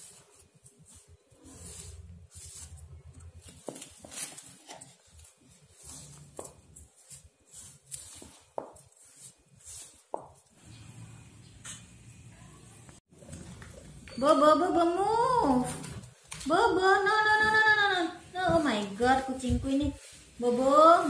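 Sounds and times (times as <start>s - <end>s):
hands kneading rice in a metal bowl: 0.0s - 10.6s, 16.4s - 21.0s.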